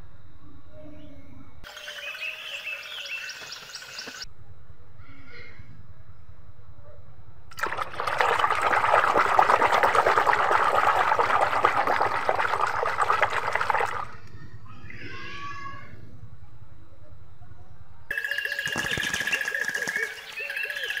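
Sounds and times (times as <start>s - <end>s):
hands splashing soapy water: 7.5s - 14.2s.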